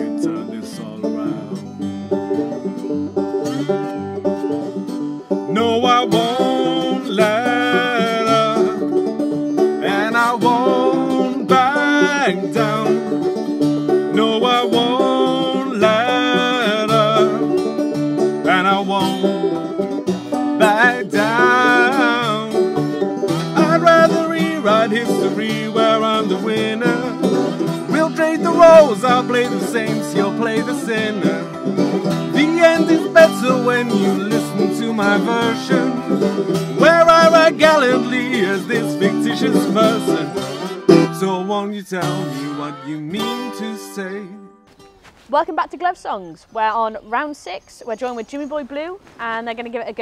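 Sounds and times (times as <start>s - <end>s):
banjo and acoustic guitar: 0.0s - 44.4s
people singing: 5.6s - 8.6s, 9.8s - 13.0s, 14.1s - 17.5s, 20.6s - 22.6s, 23.5s - 31.6s, 32.3s - 36.2s, 36.8s - 44.4s.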